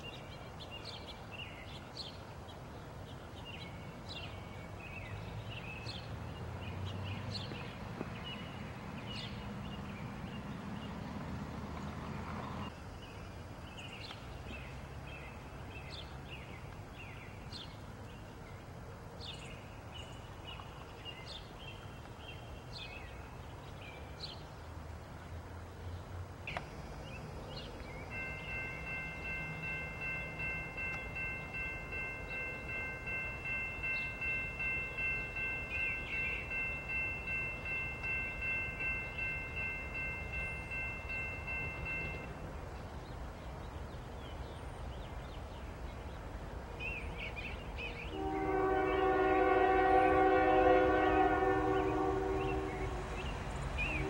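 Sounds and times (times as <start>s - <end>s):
songbirds chirping: 0.0s - 54.0s
train rumbling: 0.0s - 54.0s
railroad crossing bell ringing: 27.5s - 42.5s, 48.1s - 54.0s.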